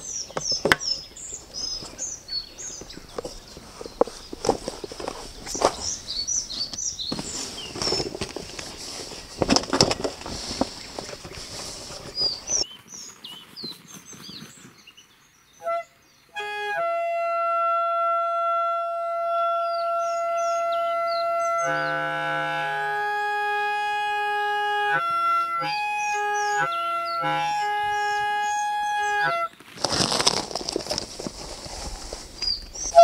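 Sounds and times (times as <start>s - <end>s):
birds chirping: 0.0s - 16.4s, 19.4s - 33.0s
gear rustling and knocking: 2.7s - 12.6s, 29.5s - 32.9s
music with long held notes: 20.7s - 29.5s.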